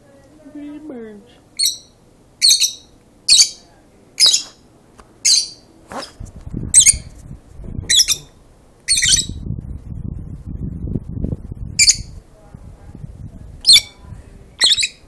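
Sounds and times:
lovebirds squawking: 0:01.6 - 0:04.6, 0:05.2 - 0:06.2, 0:07.9 - 0:09.4, 0:13.6 - 0:14.0, 0:14.6 - 0:15.0
low rumble: 0:06.1 - 0:14.6.

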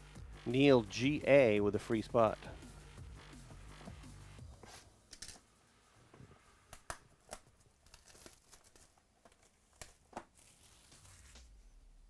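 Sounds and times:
plastic wrapping crinkling and tearing: 0:06.8 - 0:11.5.

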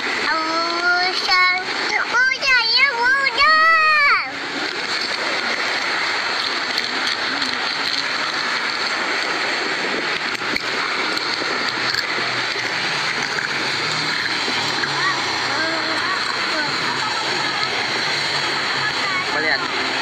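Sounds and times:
steady rushing noise: 0:00.0 - 0:20.0.

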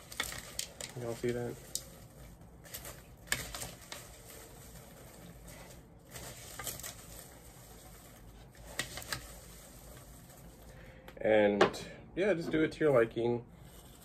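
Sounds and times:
popcorn rustling in plastic bowl: 0:00.0 - 0:10.9.

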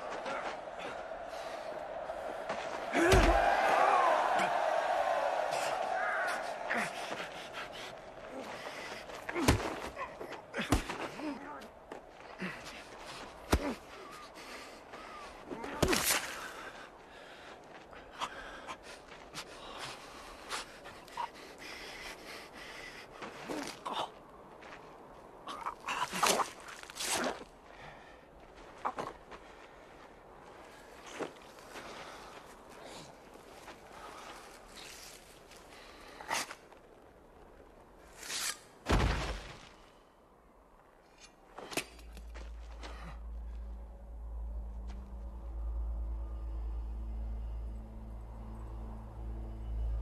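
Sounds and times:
steady low rumble: 0:42.0 - 0:50.0.

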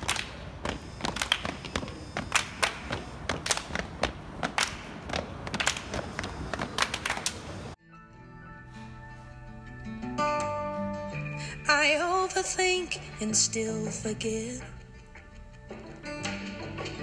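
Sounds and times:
hands clapping and slapping: 0:00.0 - 0:07.6.

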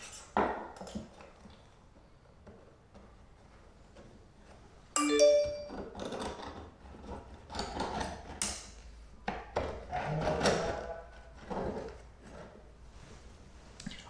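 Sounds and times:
short bright ringing tone: 0:05.0 - 0:05.9.

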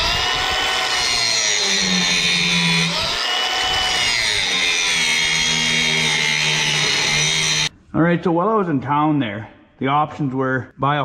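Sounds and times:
angle grinder grinding steel: 0:00.0 - 0:07.7.

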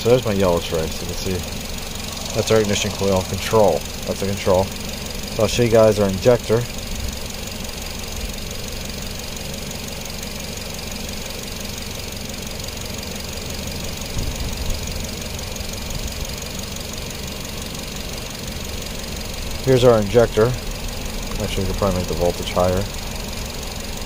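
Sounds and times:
fast even ticking: 0:00.0 - 0:08.6
engine idling: 0:00.0 - 0:24.0.

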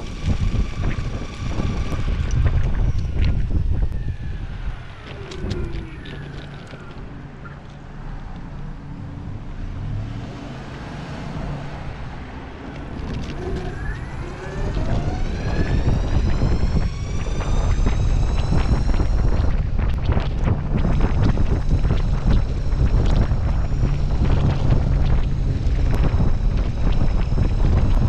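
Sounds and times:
electric motor whine: 0:00.0 - 0:07.4, 0:12.8 - 0:28.0
skateboard wheels rumbling on road: 0:00.0 - 0:07.4, 0:12.1 - 0:28.0
wind on microphone: 0:00.0 - 0:07.6, 0:11.6 - 0:28.0
clicks over road surface: 0:05.0 - 0:08.5, 0:12.7 - 0:28.0.

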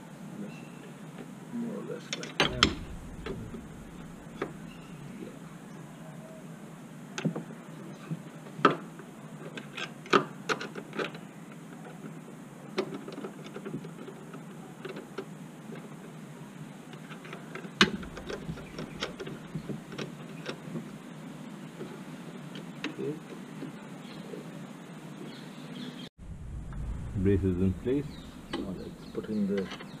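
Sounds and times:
loud knock: 0:02.4 - 0:04.8.

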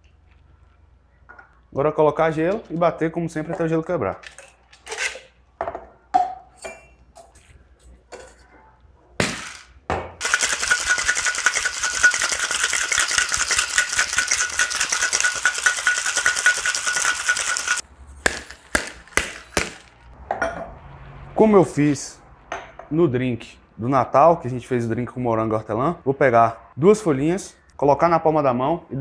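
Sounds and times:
clinks: 0:10.2 - 0:17.8
ice rattling in cocktail shaker: 0:10.2 - 0:17.8
metal tin ringing: 0:10.2 - 0:17.8.

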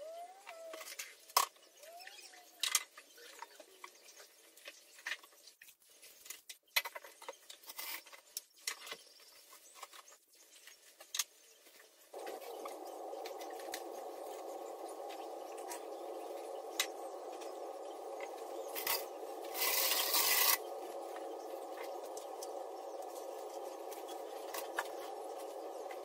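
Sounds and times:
steady whirring appliance: 0:12.2 - 0:26.0.

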